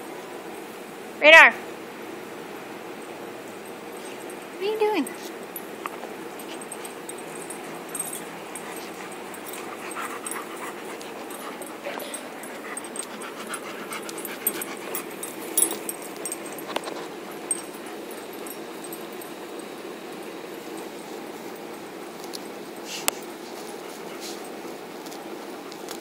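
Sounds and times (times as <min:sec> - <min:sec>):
dog panting and whimpering: 0:06.3 - 0:19.4, 0:22.8 - 0:24.6.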